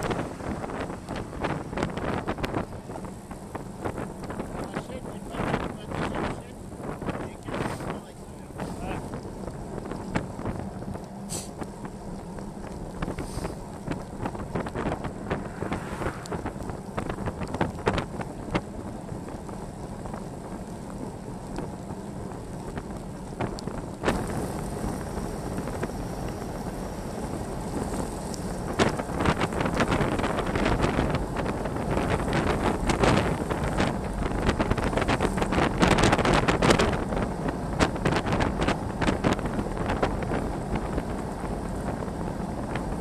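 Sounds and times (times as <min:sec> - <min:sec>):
tyres hissing on wet road: 0:00.0 - 0:09.7, 0:10.5 - 0:18.7, 0:24.0 - 0:36.6
road rumble: 0:00.0 - 0:43.0
wind buffeting microphone: 0:00.0 - 0:43.0.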